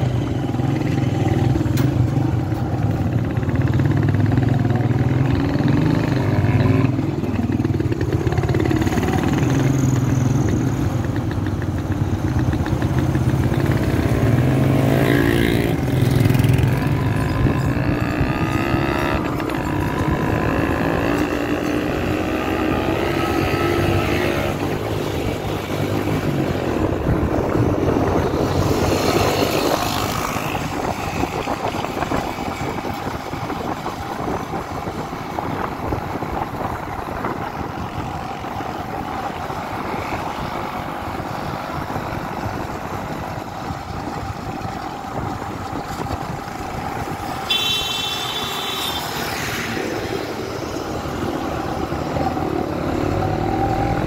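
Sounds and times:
motorcycle engine running: 0.0s - 22.2s
road noise: 0.0s - 54.0s.

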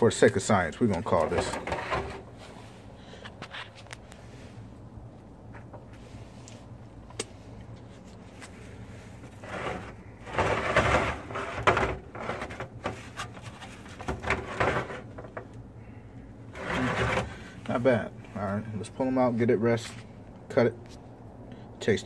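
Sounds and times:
foil pans crinkling and scraping: 0.1s - 3.9s, 8.4s - 15.4s, 16.5s - 17.8s.

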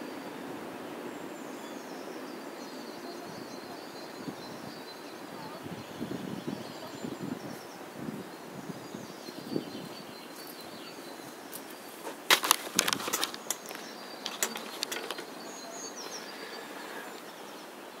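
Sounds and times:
faint birdsong chirps: 0.0s - 18.0s
video camera being handled: 12.3s - 15.3s.

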